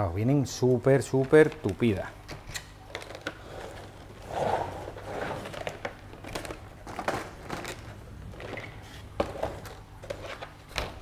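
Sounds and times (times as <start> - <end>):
plastic crinkling: 2.8 - 4.2, 4.9 - 11.0.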